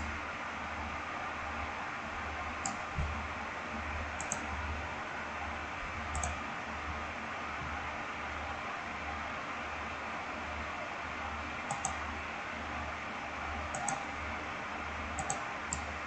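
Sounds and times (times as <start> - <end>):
computer mouse clicking: 2.6 - 2.9, 4.2 - 4.5, 6.1 - 6.4, 11.7 - 12.0, 13.7 - 14.1, 15.1 - 15.9.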